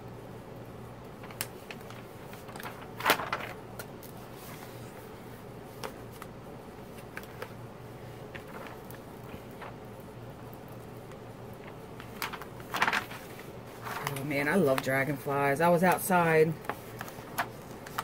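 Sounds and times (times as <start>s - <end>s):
steady low hum: 0.0s - 18.0s
plastic film crinkling: 1.1s - 5.0s, 5.7s - 14.9s.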